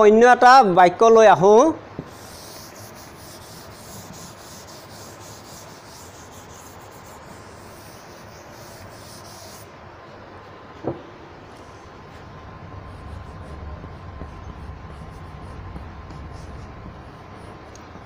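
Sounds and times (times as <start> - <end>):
duster wiping blackboard: 2.1 - 9.7, 11.6 - 17.8.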